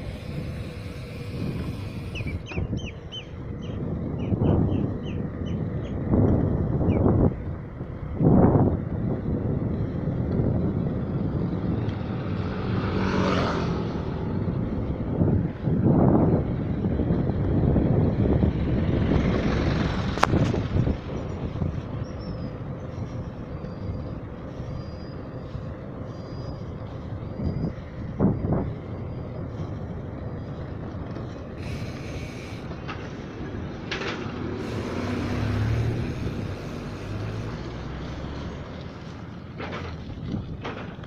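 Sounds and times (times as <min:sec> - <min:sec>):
bicycle tyres on concrete: 0:00.0 - 0:41.0
vehicle engine hum: 0:00.0 - 0:41.0
wind buffeting microphone: 0:00.0 - 0:41.0.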